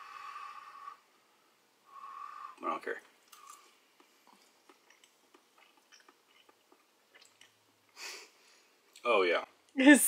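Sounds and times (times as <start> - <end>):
quiet chewing: 3.2 - 8.0
short breath: 8.0 - 8.7.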